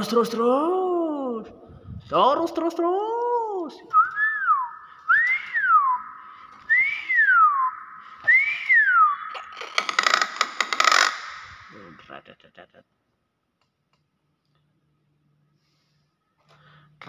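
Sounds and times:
myna whistling: 3.9s - 9.6s
harsh crackling noise: 9.3s - 11.7s.

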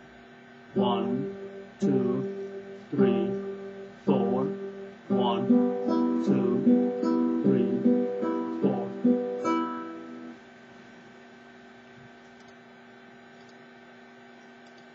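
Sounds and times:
faint steady hum: 0.0s - 14.9s
classical guitar plucked strings: 0.8s - 10.4s.

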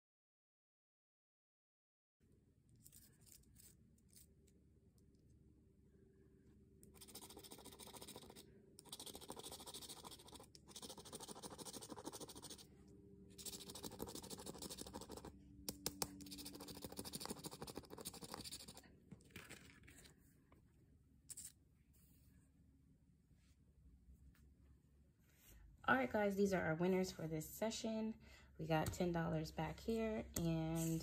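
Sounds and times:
lottery ticket being scratched: 6.9s - 12.7s, 13.4s - 18.8s.

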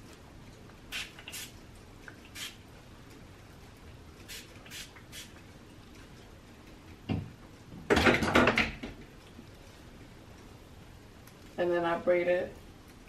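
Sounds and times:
spray bottle hissing: 0.9s - 1.5s, 2.3s - 2.6s, 4.3s - 5.3s.

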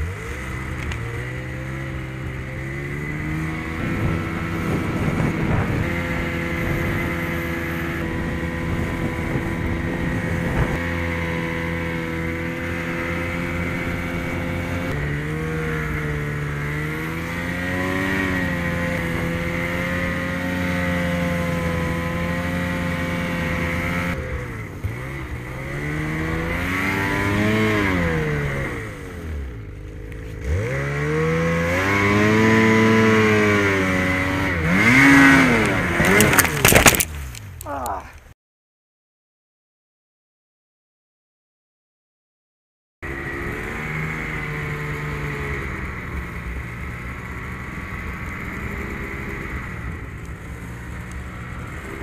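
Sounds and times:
snowmobile engine revving: 0.0s - 38.0s, 43.0s - 52.0s
knocks and clatter: 35.6s - 37.5s.

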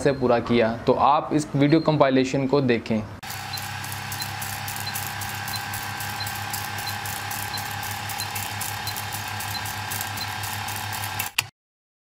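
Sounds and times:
film projector whirring: 3.2s - 11.5s.

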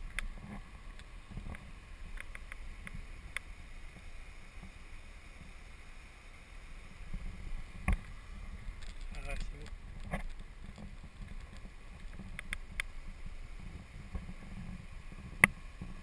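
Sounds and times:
wind rumble on microphone: 0.0s - 4.8s, 6.8s - 16.0s.

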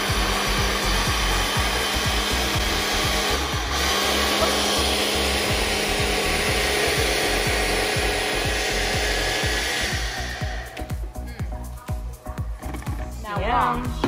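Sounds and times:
blender motor running: 0.0s - 11.0s
background music with beat: 0.0s - 14.0s.

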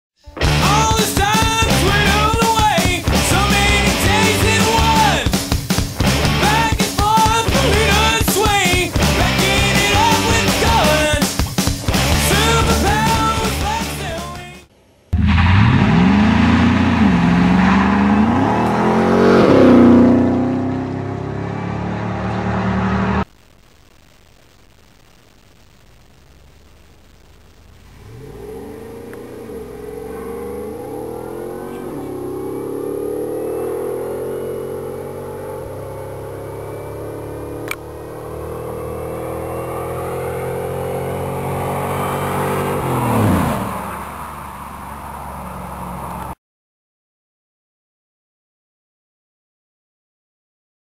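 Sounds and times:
cars racing at full throttle: 0.5s - 10.8s, 15.1s - 23.2s, 27.9s - 46.4s.

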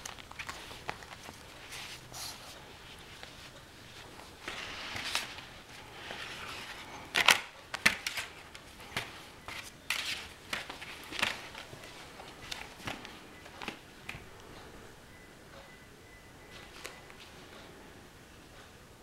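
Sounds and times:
rustling and scuffling: 0.0s - 14.3s.

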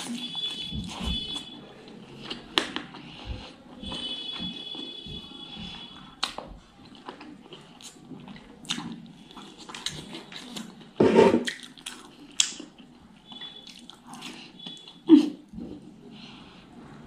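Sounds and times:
wet chewing and lip smacking: 11.4s - 15.2s.

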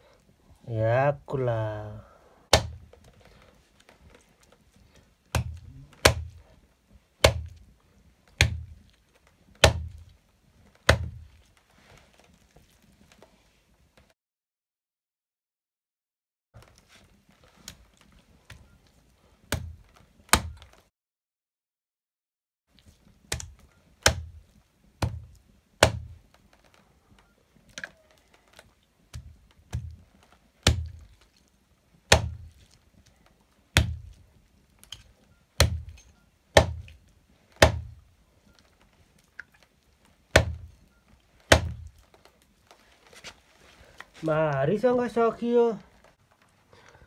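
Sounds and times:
knife chopping meat on wooden block: 2.5s - 2.8s, 5.3s - 6.4s, 7.2s - 7.6s, 25.8s - 26.1s, 32.1s - 32.4s, 33.8s - 34.1s, 35.6s - 36.0s, 36.6s - 36.9s, 37.6s - 38.0s, 40.4s - 40.7s, 41.5s - 41.9s.

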